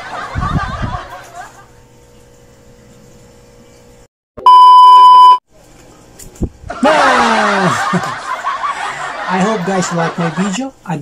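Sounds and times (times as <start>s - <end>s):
high test tone beep: 4.4s - 5.4s.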